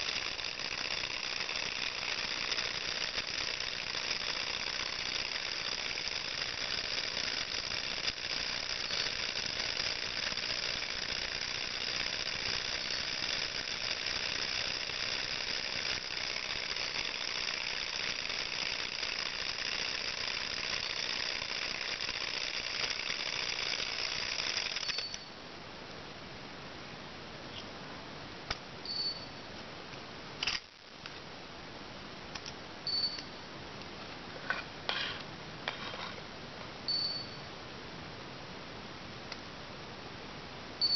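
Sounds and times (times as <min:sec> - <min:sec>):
model engine rapid clatter: 0:00.0 - 0:25.1.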